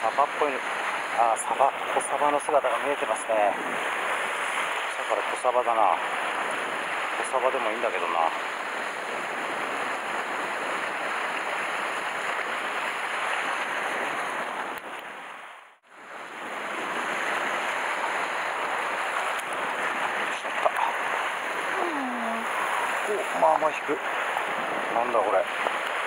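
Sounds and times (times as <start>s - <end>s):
sea swell washing against rocks: 16.2s - 26.0s.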